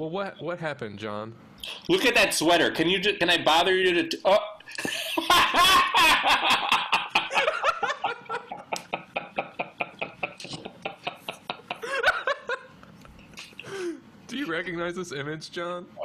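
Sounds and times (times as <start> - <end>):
hearty laughter: 4.7 - 12.8.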